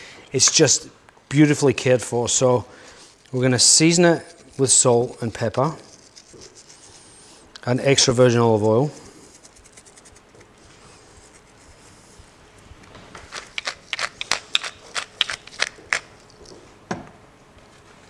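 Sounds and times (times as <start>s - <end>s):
pepper mill clicking: 13.3s - 16.4s.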